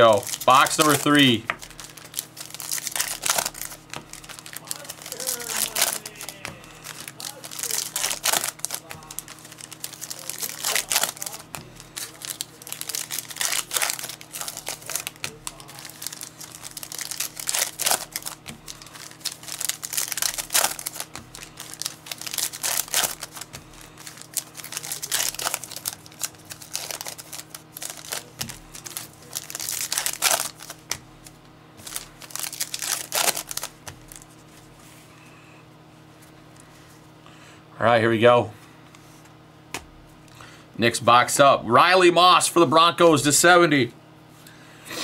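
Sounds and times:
card wrappers tearing and crinkling: 0.0s - 34.6s.

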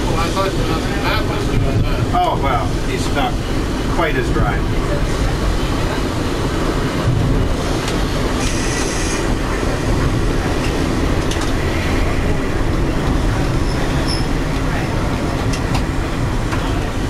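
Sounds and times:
rolling rumble of wheels: 0.0s - 17.0s
high wheel squeal: 8.4s - 9.4s, 13.5s - 14.4s.

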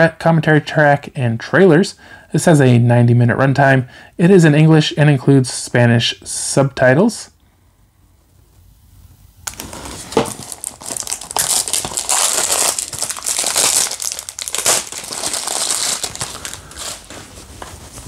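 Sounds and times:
plastic wrap crinkling: 9.4s - 18.0s.

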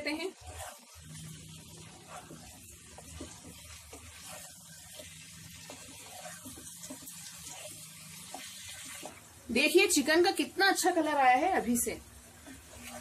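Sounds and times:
wooden spatula scraping and knocking: 0.0s - 9.3s, 10.8s - 13.0s
food sizzling in a pan: 0.0s - 13.0s.

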